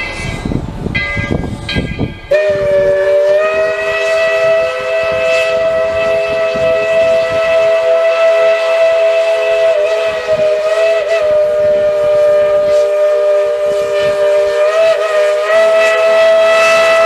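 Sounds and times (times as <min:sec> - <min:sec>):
locomotive bell ringing: 0:00.0 - 0:10.2
steam locomotive chuffing: 0:00.0 - 0:17.0
steam whistle blast: 0:02.3 - 0:17.0.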